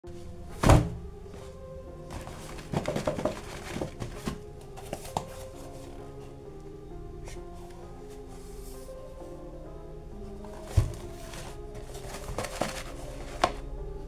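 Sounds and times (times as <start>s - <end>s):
background music: 0.0s - 14.0s
cardboard boxes thumping: 0.5s - 1.1s, 2.1s - 5.4s, 10.6s - 13.6s
cardboard box handled: 2.1s - 5.6s, 10.5s - 13.6s.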